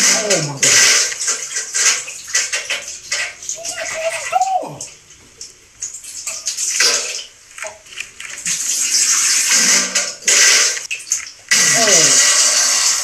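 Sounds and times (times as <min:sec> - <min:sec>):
comic toilet splashing effect: 0:11.5 - 0:13.0.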